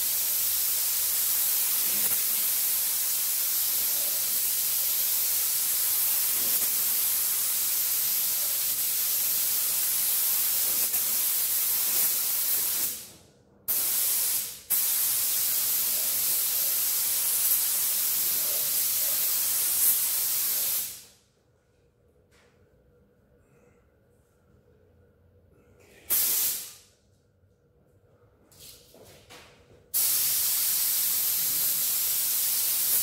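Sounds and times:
paint spray gun hissing: 0:00.0 - 0:13.0, 0:13.7 - 0:21.0, 0:26.1 - 0:26.8, 0:30.0 - 0:33.0.

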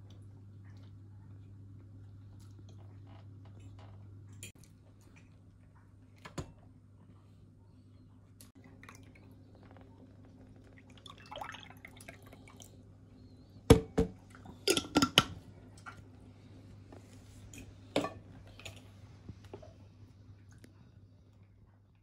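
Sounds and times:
faint low hum: 0:00.0 - 0:22.0
juice pouring into glasses: 0:10.7 - 0:12.7.

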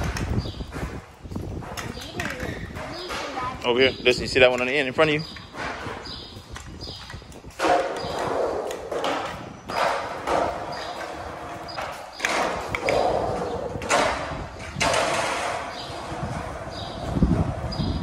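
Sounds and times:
scooter knocks and clatters: 0:00.0 - 0:03.6, 0:04.4 - 0:18.0
scooter wheels rumbling on concrete: 0:00.0 - 0:18.0.

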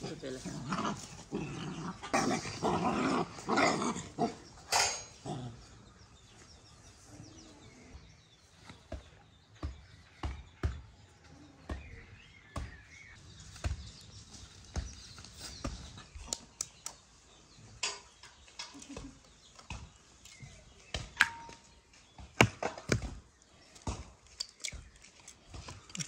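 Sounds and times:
dogs growling and barking: 0:00.0 - 0:06.0.

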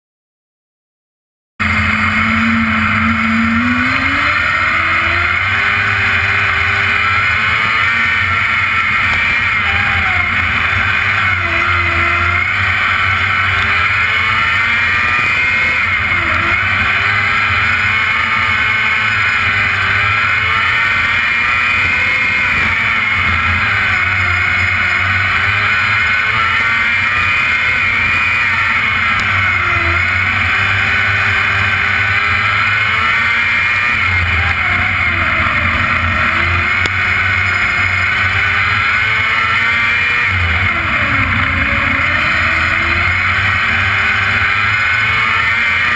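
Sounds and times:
race car engine at speed: 0:01.6 - 0:45.9.

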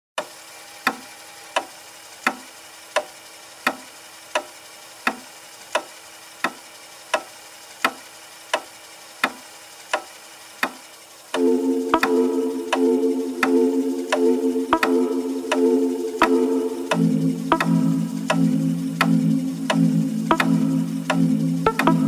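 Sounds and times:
clock ticking: 0:00.2 - 0:22.0
faint steady hiss: 0:00.2 - 0:22.0
low hum: 0:11.4 - 0:22.0.

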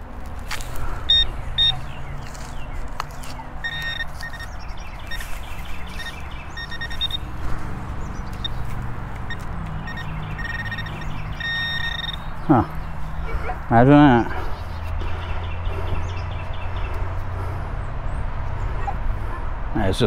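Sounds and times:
metal detector pinpointer beeping: 0:01.1 - 0:01.8, 0:03.6 - 0:07.3, 0:08.2 - 0:08.7, 0:09.3 - 0:12.3.

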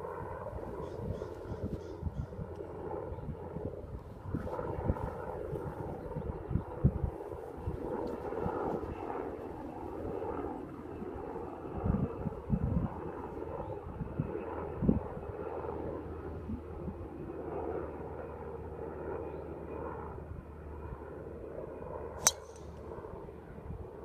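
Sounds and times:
golf club striking ball: 0:22.2 - 0:22.7.

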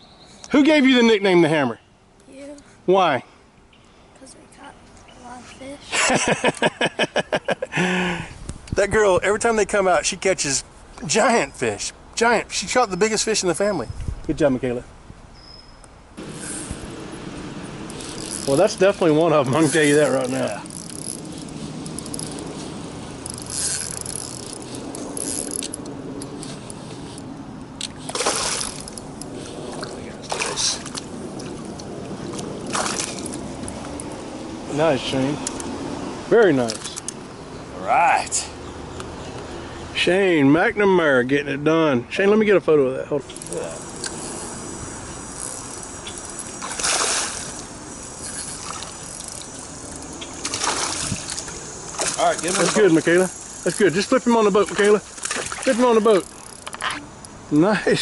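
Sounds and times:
fishing reel gears whirring: 0:16.2 - 0:27.2, 0:28.1 - 0:29.5, 0:43.3 - 0:57.4
fish splashing: 0:27.8 - 0:33.9, 0:44.9 - 0:53.8, 0:54.6 - 0:57.1.

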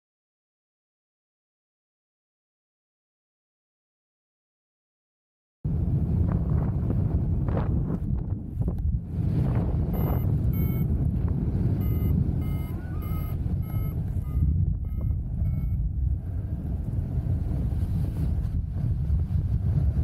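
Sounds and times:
wind buffeting on microphone: 0:05.7 - 0:20.0
short electronic beeps: 0:09.9 - 0:10.9, 0:11.7 - 0:15.8.

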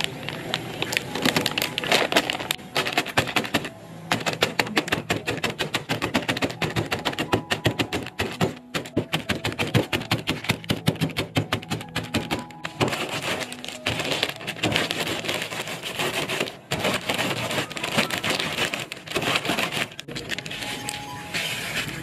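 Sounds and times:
chips crunching in plastic bag: 0:00.0 - 0:05.6, 0:11.8 - 0:22.0
plastic packet crinkling: 0:00.0 - 0:22.0.

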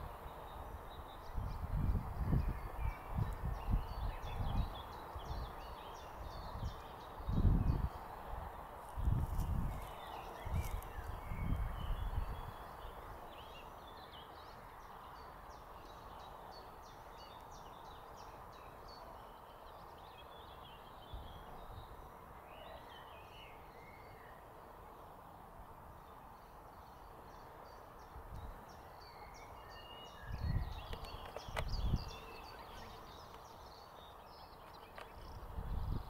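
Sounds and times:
steady outdoor hiss: 0:00.0 - 0:36.0
birds chirping and singing: 0:28.7 - 0:36.0.

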